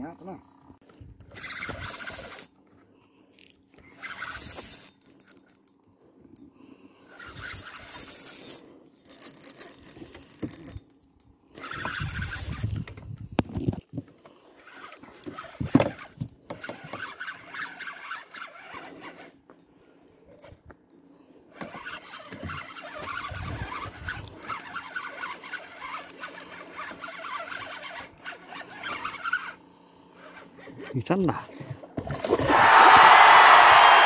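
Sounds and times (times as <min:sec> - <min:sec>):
fishing reel cranking: 0:01.2 - 0:02.6, 0:03.3 - 0:05.8, 0:07.0 - 0:20.6, 0:21.5 - 0:31.2.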